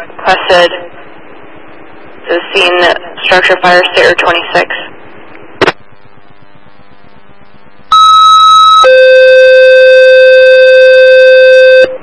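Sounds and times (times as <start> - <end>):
radio channel hiss: 0.0 - 1.1, 2.2 - 7.5.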